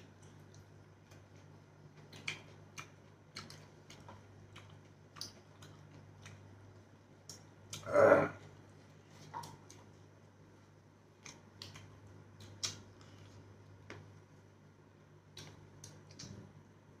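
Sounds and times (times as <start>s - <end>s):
chewing: 0.2s - 6.5s.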